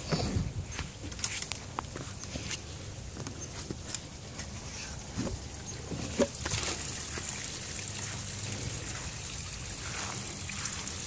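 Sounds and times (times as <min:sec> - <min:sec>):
water spraying and splashing: 0:04.6 - 0:11.0.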